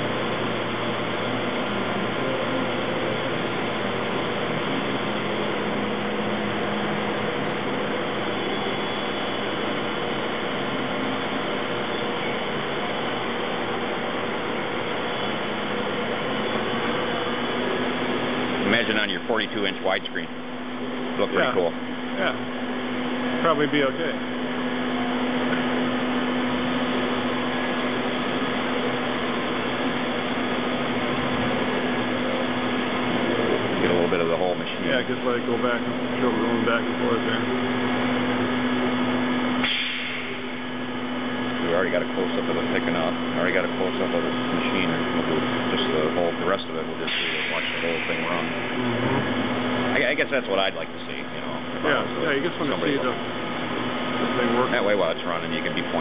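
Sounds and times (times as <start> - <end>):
lathe humming and hissing: 0.0 - 56.0
low tone: 47.2 - 50.4.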